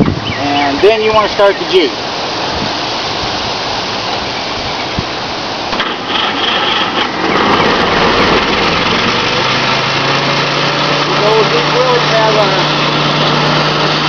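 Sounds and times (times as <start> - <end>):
steady rushing noise: 0.0 - 14.0
engine cranked by starter: 5.7 - 14.0
engine idling: 5.7 - 14.0.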